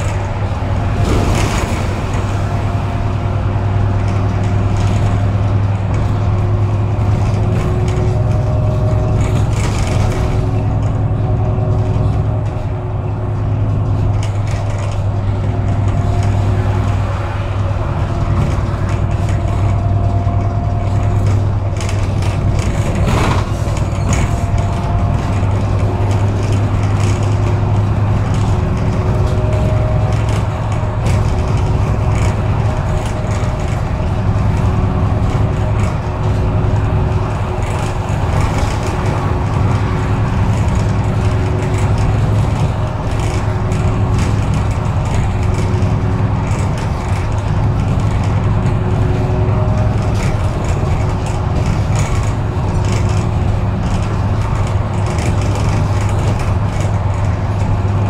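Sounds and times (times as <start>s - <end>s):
bus engine and road rumble: 0.0s - 58.0s
rattles: 0.0s - 58.0s.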